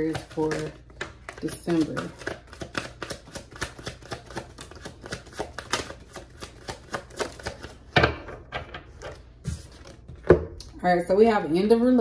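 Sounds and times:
cards being shuffled: 0:00.0 - 0:07.9, 0:09.0 - 0:10.2.

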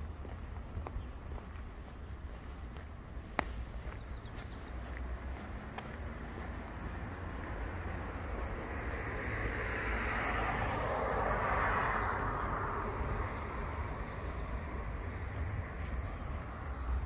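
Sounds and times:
car driving past: 0:05.5 - 0:15.1.

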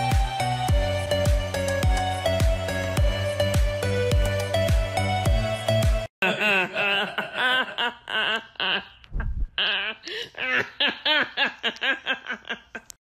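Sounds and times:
music: 0:00.0 - 0:06.1
person laughing high-pitched: 0:06.2 - 0:13.0.

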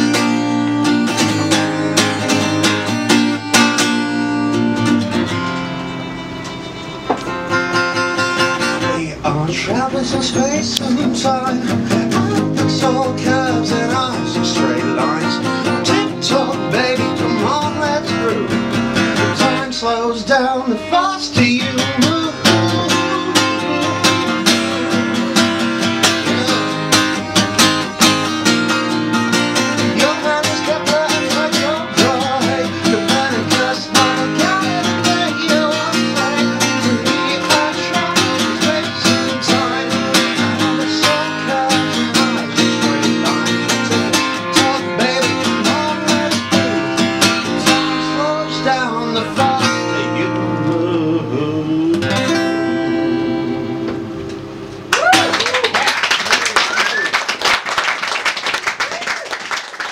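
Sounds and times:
acoustic guitar strumming: 0:00.0 - 0:55.3
man singing: 0:08.8 - 0:18.6, 0:19.2 - 0:27.4, 0:29.8 - 0:54.0.

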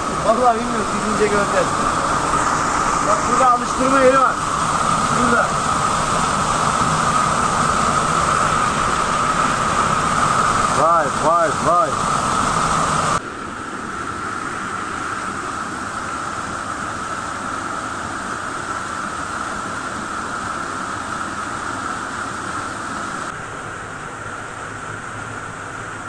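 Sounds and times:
waterfall rushing: 0:00.0 - 0:13.2.

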